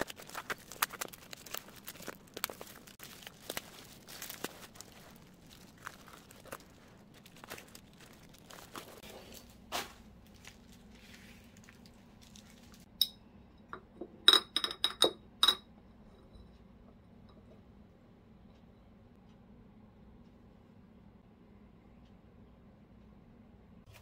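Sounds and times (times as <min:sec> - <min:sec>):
rustling of handling: 0:00.0 - 0:12.9
hard containers clinking together: 0:13.0 - 0:15.6.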